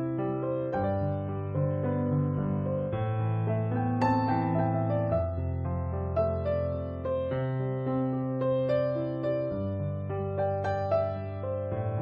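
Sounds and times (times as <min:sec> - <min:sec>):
soft keyboard chords: 0:00.0 - 0:12.0.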